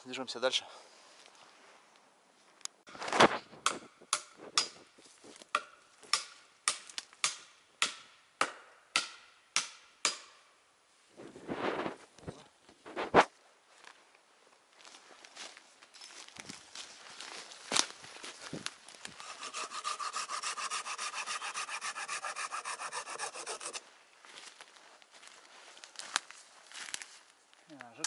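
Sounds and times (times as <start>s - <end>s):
hand tool striking wood: 3.6s - 4.8s, 5.5s - 10.4s, 19.2s - 23.8s
scuffling rustle: 11.2s - 19.2s, 24.2s - 28.0s.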